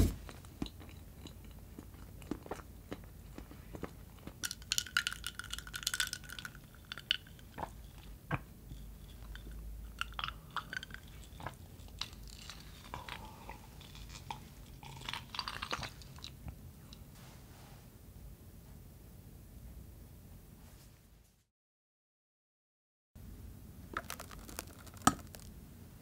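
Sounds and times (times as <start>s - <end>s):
ice cubes clinking in glass: 4.5s - 8.0s, 24.0s - 25.5s.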